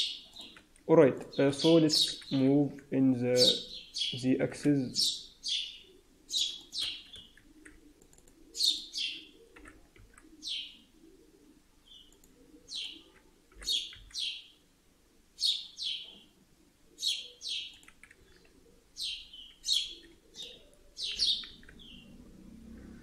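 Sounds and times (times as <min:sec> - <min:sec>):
bird chirping: 0:00.0 - 0:07.8, 0:08.4 - 0:14.6, 0:15.4 - 0:23.0.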